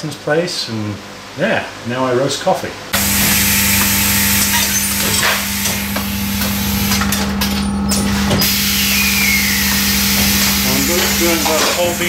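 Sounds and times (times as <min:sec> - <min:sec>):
loud air hiss: 0:03.0 - 0:07.1, 0:08.0 - 0:12.0
machine motor hum: 0:03.0 - 0:12.0.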